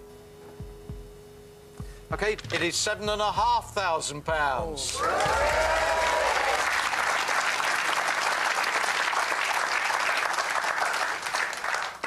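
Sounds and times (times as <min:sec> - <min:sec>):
audience applauding: 0:04.9 - 0:12.0.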